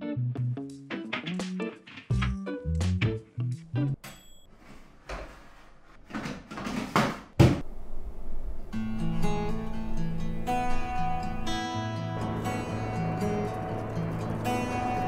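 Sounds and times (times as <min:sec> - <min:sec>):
plucked guitar music: 0:00.0 - 0:04.0, 0:08.8 - 0:15.0.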